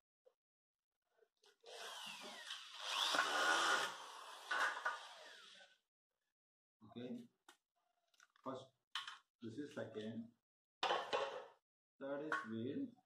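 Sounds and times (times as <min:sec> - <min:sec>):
cordless drill running: 0:01.6 - 0:05.7.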